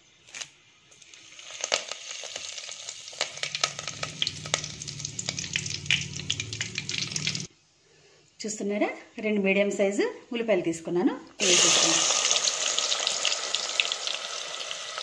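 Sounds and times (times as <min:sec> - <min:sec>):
leaves sizzling in hot oil: 0:00.3 - 0:07.5, 0:11.4 - 0:15.0.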